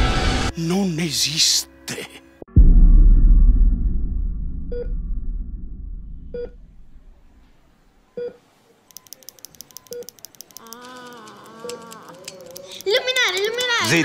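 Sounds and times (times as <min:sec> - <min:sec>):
deep blast rumble: 0:02.5 - 0:07.4
heart monitor beeping: 0:06.3 - 0:06.6, 0:08.1 - 0:12.7
faint rapid ticking: 0:09.0 - 0:14.0.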